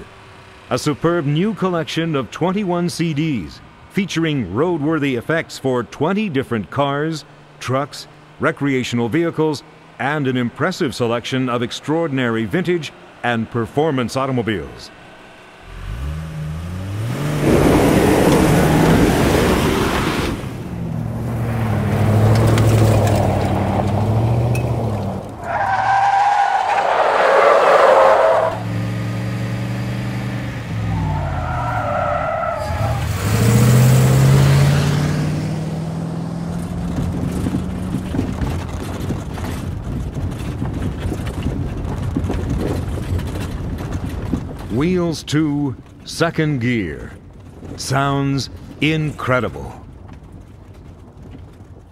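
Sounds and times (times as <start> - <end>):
car engines revving: 0.0 - 51.9
cars passing by: 0.0 - 51.9
tyres squealing: 21.6 - 28.7, 30.7 - 34.3.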